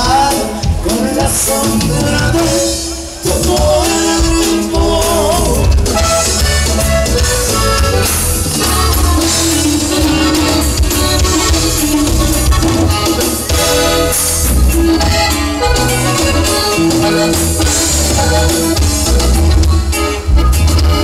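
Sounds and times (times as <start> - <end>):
person singing: 0.0 - 6.0
live band dance music: 0.0 - 21.0.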